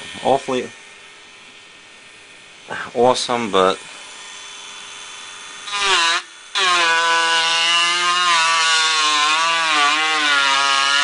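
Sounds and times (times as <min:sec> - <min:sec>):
rotary tool grinding metal: 0:03.0 - 0:11.0.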